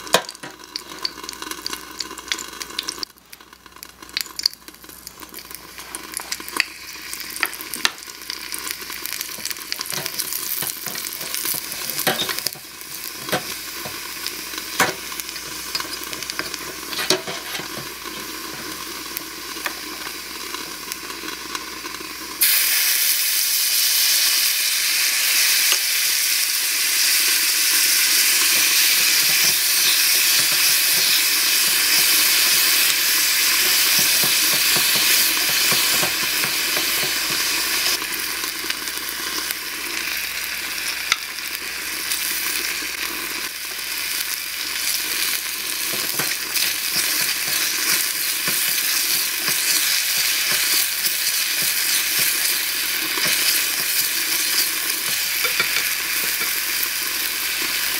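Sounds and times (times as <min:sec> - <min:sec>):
onion sizzling in hot oil: 0:00.0 - 0:57.9
wooden spatula scraping a pan: 0:16.2 - 0:17.9.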